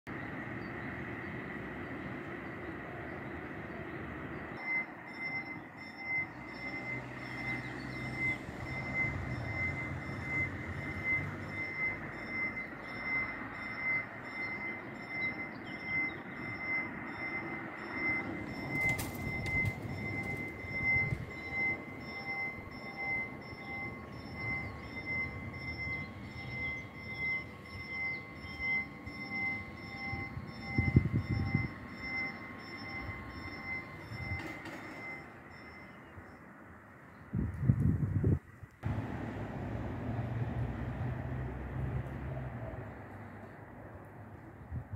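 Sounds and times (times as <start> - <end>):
level-crossing bell ringing: 4.5 - 36.4.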